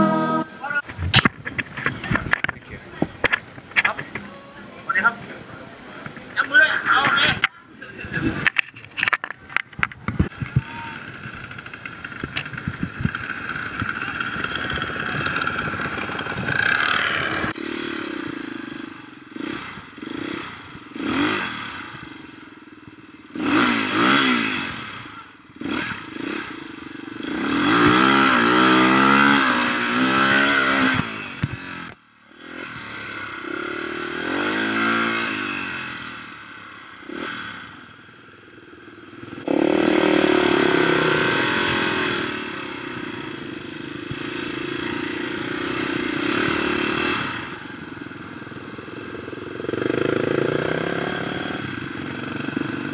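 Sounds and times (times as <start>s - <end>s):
dirt bike engine revving: 0.0s - 0.8s, 10.3s - 52.9s
rattling and clatter: 8.3s - 17.6s.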